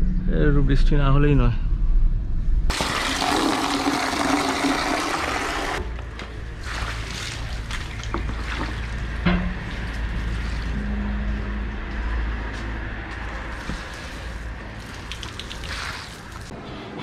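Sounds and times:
low rumble: 0.0 - 2.7
tap water running into bucket: 2.7 - 5.9, 6.6 - 9.0, 13.6 - 16.5
bucket knocks and clatters: 7.7 - 9.8.

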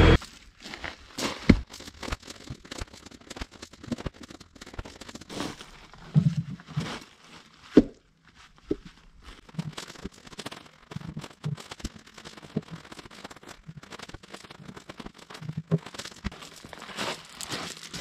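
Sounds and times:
boots crunching on gravel: 0.0 - 1.8, 15.7 - 18.0.

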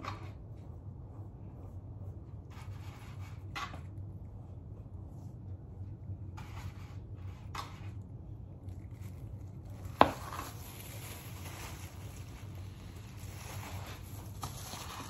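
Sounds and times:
steady low hum: 0.0 - 15.0
gloved hands rustling wet hair: 8.5 - 15.0.

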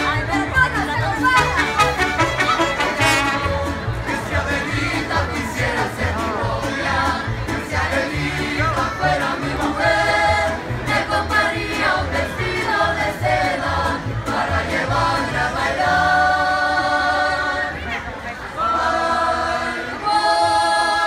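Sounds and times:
violins: 0.0 - 13.4
guitars: 0.0 - 15.3
bass guitar line: 0.0 - 15.6
chorus singing: 0.0 - 21.0.

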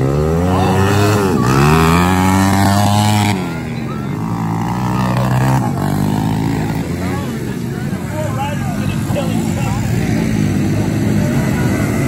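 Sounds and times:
dirt bike engines revving: 0.0 - 12.0.

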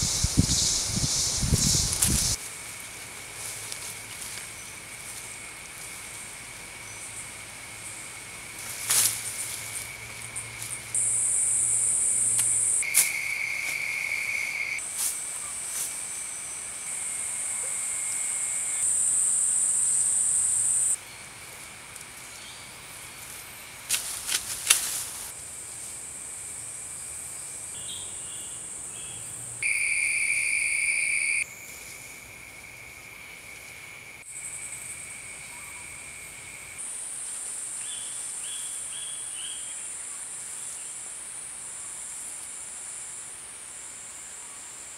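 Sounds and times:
crackling of dry grass: 0.0 - 6.1, 8.6 - 11.0, 12.4 - 15.9, 23.2 - 25.4
insects buzzing: 0.0 - 44.9.

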